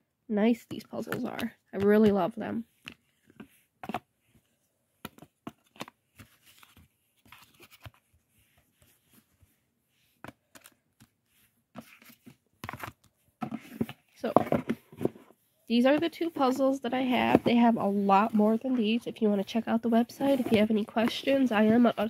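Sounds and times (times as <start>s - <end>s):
puzzle pieces tapping and scraping: 0.7s - 4.0s
cardboard rustling: 1.1s - 9.5s, 10.1s - 22.0s.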